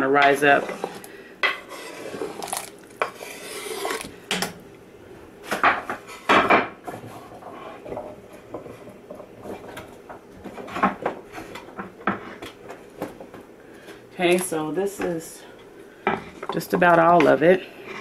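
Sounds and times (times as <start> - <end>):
scrape on pot: 0.3 - 4.2.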